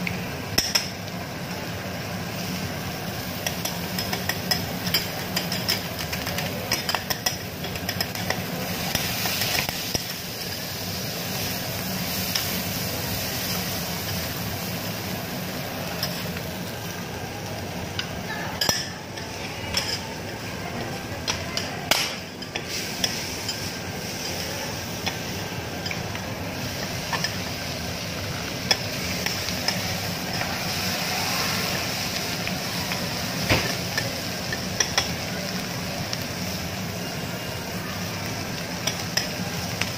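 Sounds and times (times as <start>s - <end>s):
food sizzling on a griddle: 0.0s - 39.9s.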